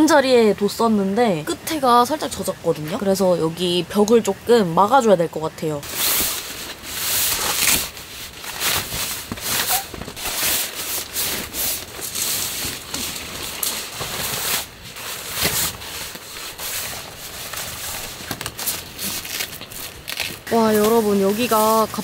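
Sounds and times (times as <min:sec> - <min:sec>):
rain on tent: 0:05.8 - 0:22.0
tent fabric rustling: 0:05.8 - 0:22.0.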